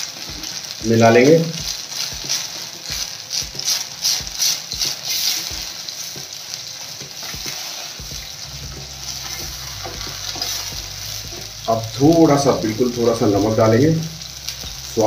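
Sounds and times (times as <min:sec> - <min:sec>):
paste sizzling in hot oil: 0:00.0 - 0:15.0
spoon scraping a pan: 0:08.7 - 0:11.5.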